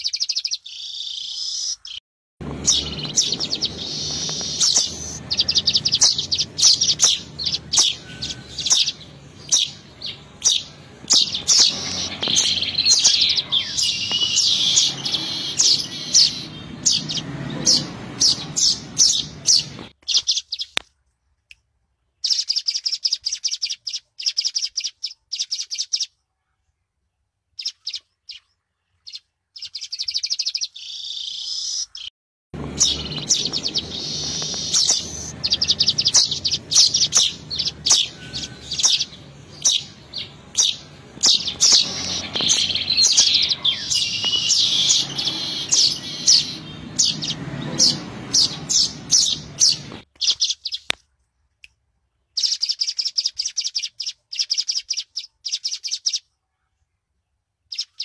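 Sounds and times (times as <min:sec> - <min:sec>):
weaver bird chattering chirps: 0:00.0 - 0:20.8, 0:29.1 - 0:50.9, 0:52.4 - 0:56.2
low background rumble: 0:02.4 - 0:19.9, 0:32.6 - 0:50.0.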